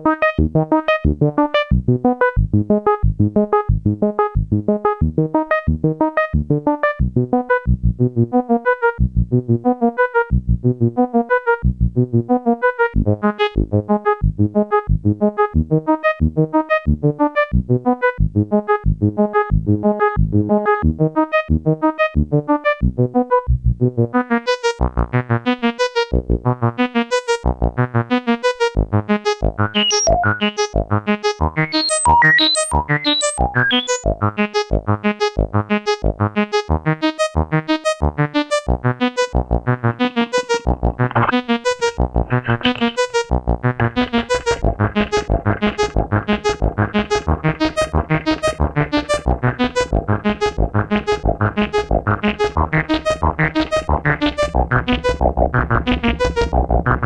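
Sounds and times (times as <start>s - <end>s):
electronic music with pulsing beat: 29.3s - 34.9s, 39.2s - 57.0s.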